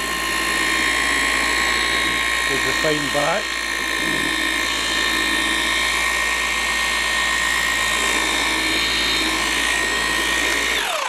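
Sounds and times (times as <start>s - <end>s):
machine polisher whining: 0.0s - 11.0s.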